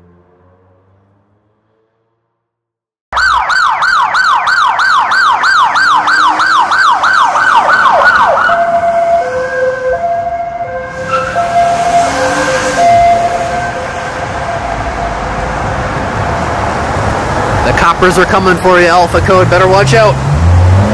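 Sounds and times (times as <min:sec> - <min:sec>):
police siren yelp and hi-lo: 0:03.1 - 0:16.3.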